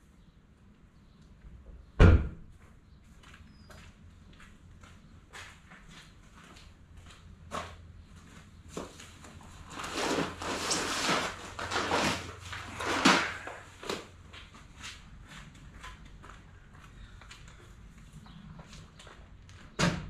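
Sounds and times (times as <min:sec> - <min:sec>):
footsteps: 0:02.5 - 0:19.8
bags rustling and scraping on tarp: 0:09.4 - 0:13.9.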